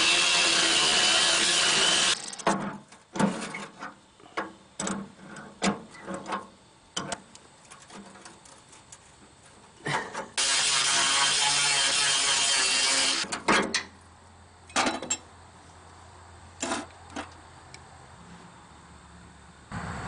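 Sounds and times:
power tool motor running: 0.0s - 2.4s, 10.4s - 13.2s
tools clanking on metal: 13.2s - 14.0s, 14.7s - 15.3s.

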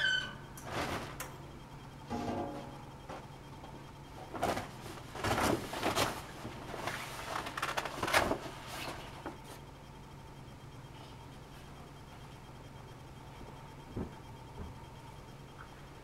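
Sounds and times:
steady low hum: 0.0s - 16.0s
bed linens rustling: 4.2s - 9.5s.

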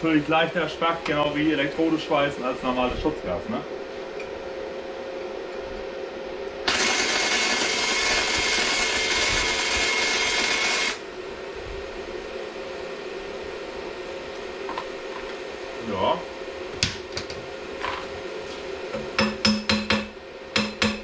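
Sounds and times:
welding arc hissing: 6.6s - 11.0s.

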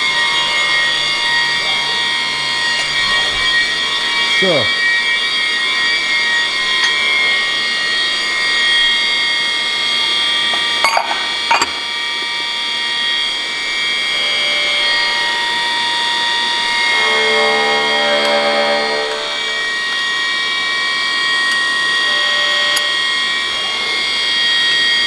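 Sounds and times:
high-pitched machine whine: 0.0s - 25.0s
low hum: 12.3s - 25.0s.

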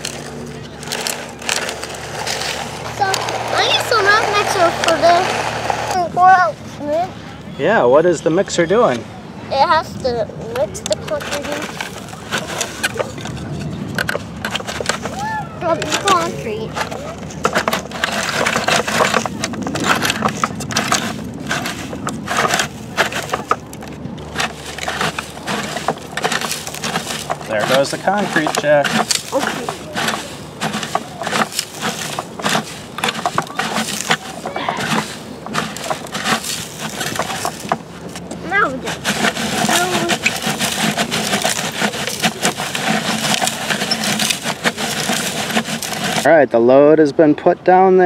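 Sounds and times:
sand rattling in toy cement mixer: 0.0s - 6.6s, 9.6s - 46.3s.

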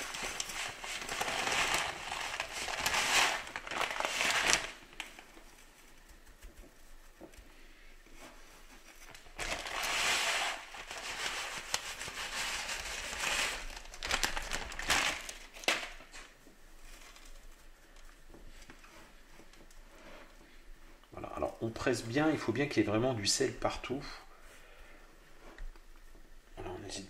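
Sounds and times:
salt grains pouring: 0.0s - 4.8s, 9.6s - 13.7s
plastic bag crinkling: 0.0s - 5.8s, 9.0s - 18.1s.

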